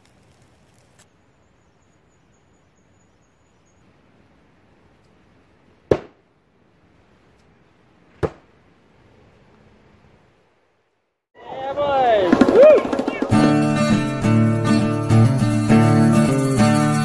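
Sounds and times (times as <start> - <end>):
axe striking wooden target: 5.9 - 6.2, 8.2 - 8.5.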